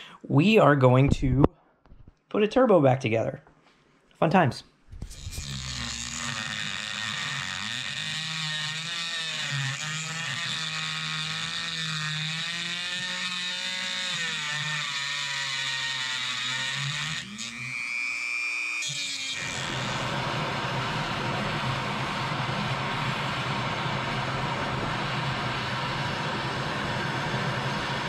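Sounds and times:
rotary tool grinding bolts: 5.0 - 23.5
gas torch hissing: 19.5 - 28.0.

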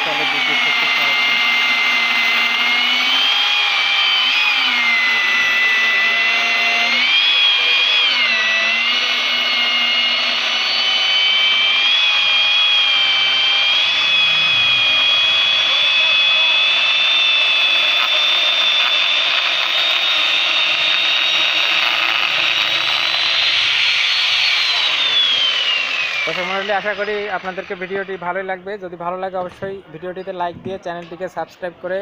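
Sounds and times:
chainsaw cutting a log: 0.0 - 28.5.

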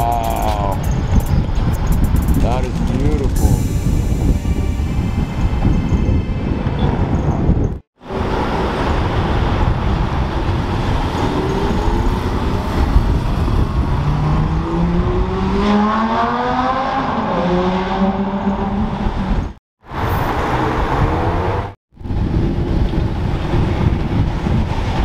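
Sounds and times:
street traffic: 0.0 - 25.0
sports car accelerating: 8.2 - 19.4.

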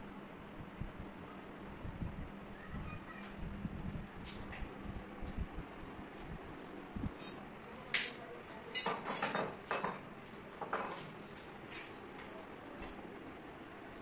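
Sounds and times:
metal on metal clinks: 7.1 - 7.4.

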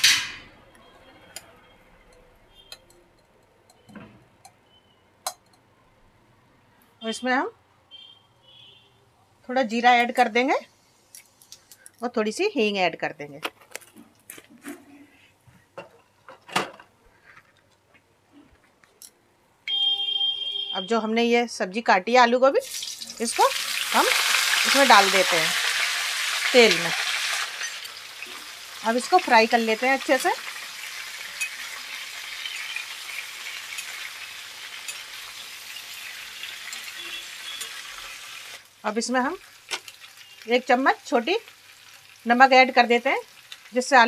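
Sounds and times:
loud high-pitched tone: 19.7 - 20.9
seeds crackling in hot oil: 22.6 - 44.0.

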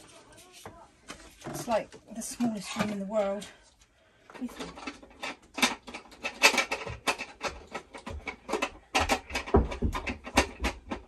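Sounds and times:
household items clicking and rustling: 0.0 - 3.6, 4.2 - 11.0.

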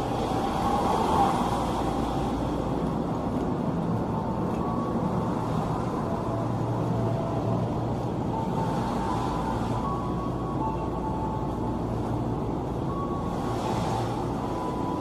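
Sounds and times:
electric train humming: 0.0 - 15.0.

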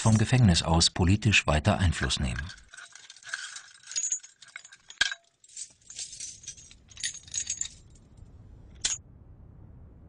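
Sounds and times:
metal keys jangling: 2.3 - 8.2.

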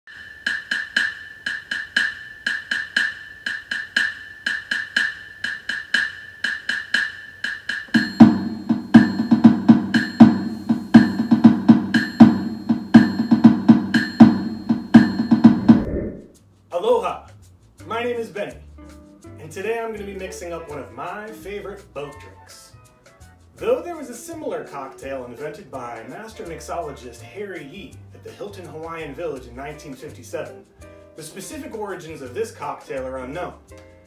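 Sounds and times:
woodblock-like strikes: 0.1 - 16.2
low drums: 0.6 - 16.4.

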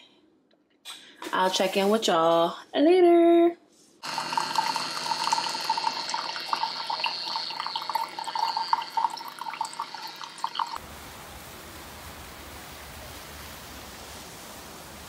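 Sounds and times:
coffee pouring into a mug: 4.0 - 10.8.

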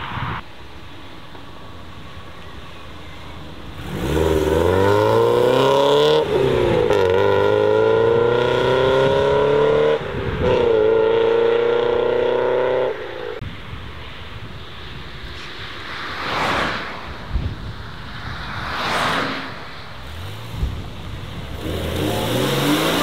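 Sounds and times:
car engine accelerating: 3.6 - 13.1, 20.0 - 23.0.

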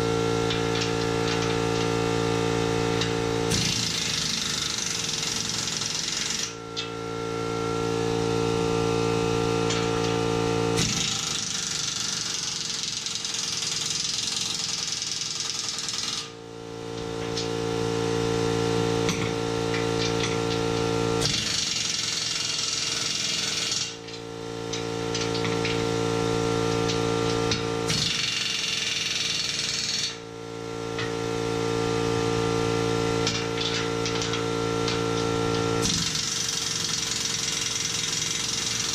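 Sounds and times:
air compressor humming: 0.0 - 12.7, 16.3 - 38.9.

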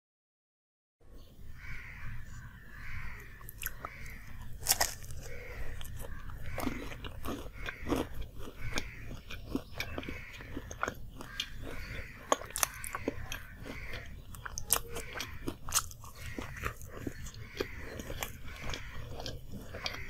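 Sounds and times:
crisp pastry crunching: 3.3 - 20.0
wet chewing mouth sounds: 3.3 - 20.0.

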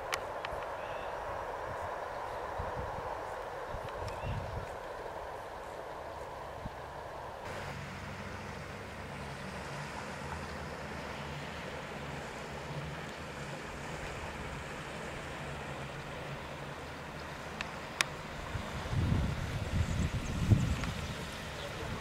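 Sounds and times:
wind noise on microphone: 0.0 - 7.6, 18.3 - 22.0
water noise: 0.0 - 22.0.

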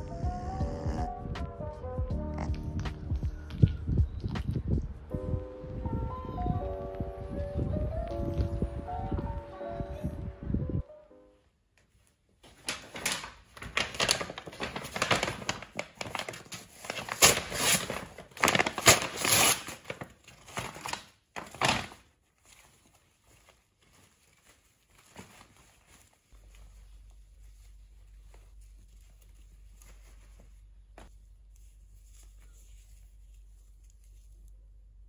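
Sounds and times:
paper bag crinkling: 12.4 - 34.4.

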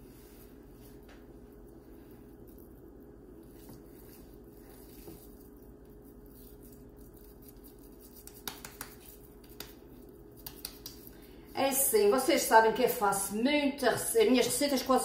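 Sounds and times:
steady low hum: 0.0 - 15.0
hands handling minced meat: 0.3 - 11.2
sharp pats on meat patty: 8.1 - 11.1.

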